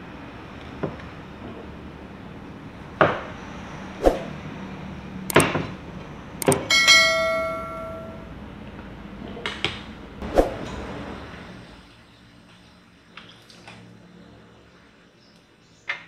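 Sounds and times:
bell-like metallic ring: 6.6 - 8.4.

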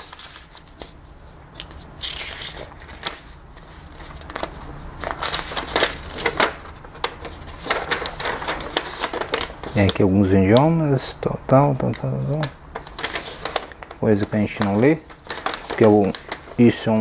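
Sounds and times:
paper leaflet crackling and rustling: 0.0 - 17.0.

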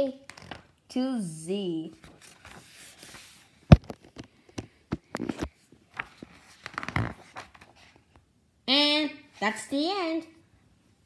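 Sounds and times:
book pages turning: 0.3 - 0.6, 1.9 - 8.2.

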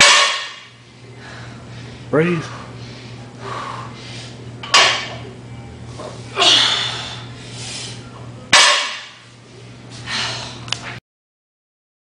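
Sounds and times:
woman breathing: 1.1 - 4.4, 6.3 - 8.0, 10.0 - 10.7.

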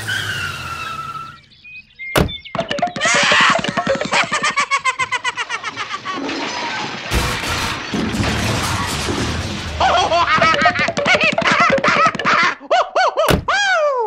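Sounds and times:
cartoon crash and boom: 6.4 - 11.0.

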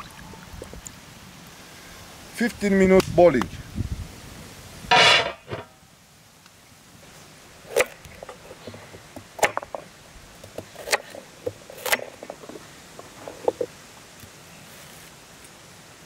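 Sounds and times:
metal lid clanking onto pot: 4.9 - 5.7.

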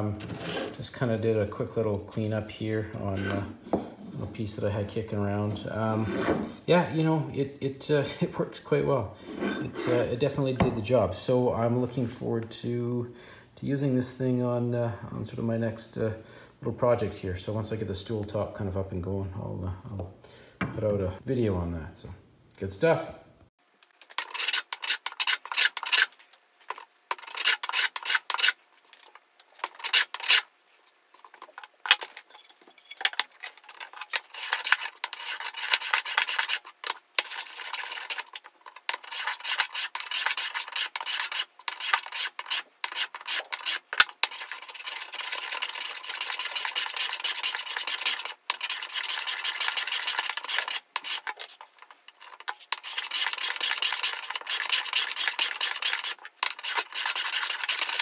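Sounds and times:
hand plane shaving wood: 0.2 - 0.8, 24.2 - 26.1, 27.1 - 28.6, 29.7 - 30.4, 33.6 - 51.6, 52.2 - 58.0.

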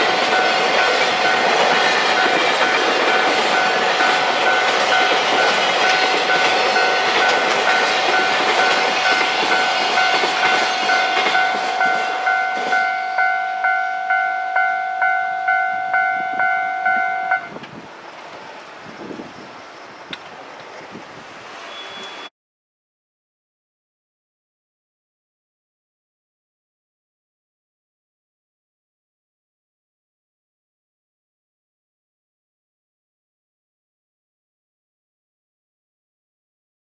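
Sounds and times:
level crossing bell ringing: 0.0 - 17.5
freight train rumbling and clacking: 0.0 - 22.3.

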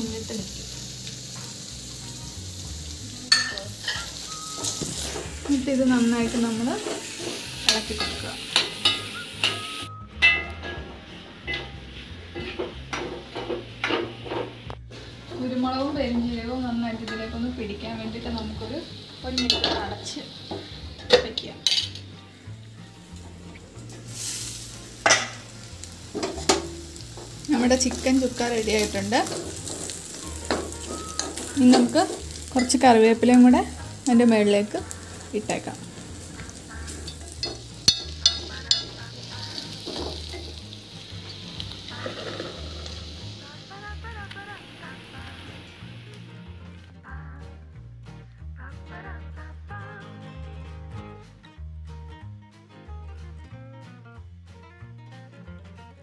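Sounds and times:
chicken sizzling in a pan: 0.0 - 9.9, 11.2 - 46.4
spoon clinking on metal: 3.3 - 4.9, 37.0 - 39.0
metal spoon scraping a pan: 3.3 - 5.6, 26.1 - 32.9, 34.8 - 40.6, 41.2 - 43.0.

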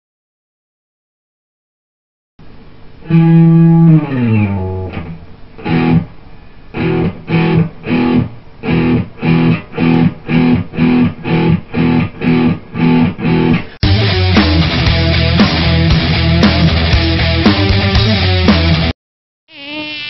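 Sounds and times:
guitar playing chords: 3.0 - 6.1, 6.7 - 18.9.

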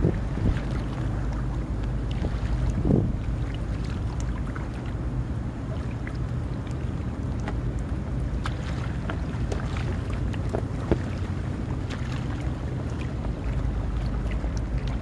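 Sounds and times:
wind noise on microphone: 0.0 - 1.0, 2.1 - 3.5
water lapping on shoreline: 0.0 - 15.0.

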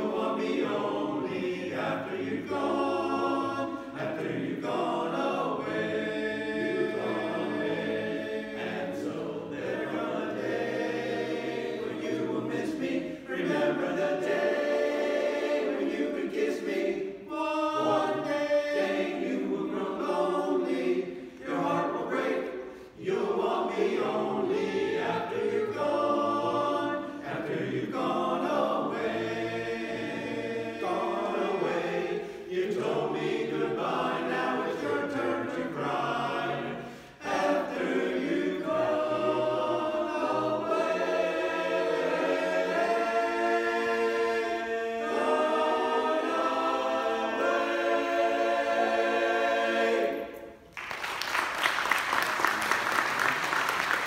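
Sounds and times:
chorus singing a cappella: 0.0 - 50.7
singers breathing: 22.6 - 23.0, 32.2 - 32.5, 36.8 - 37.2.

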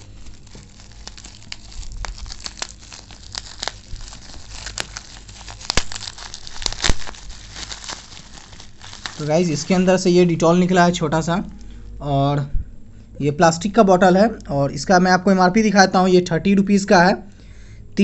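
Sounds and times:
bubble wrap crinkling: 0.0 - 11.8.

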